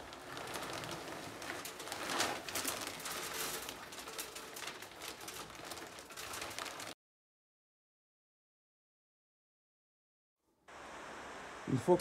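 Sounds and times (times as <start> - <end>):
plastic bag crinkling: 0.0 - 7.0
wood pellets pouring: 0.0 - 7.0.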